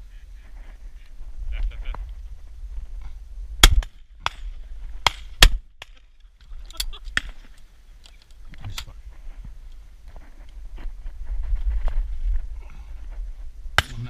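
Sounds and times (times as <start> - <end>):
shotgun shots: 3.6 - 5.9.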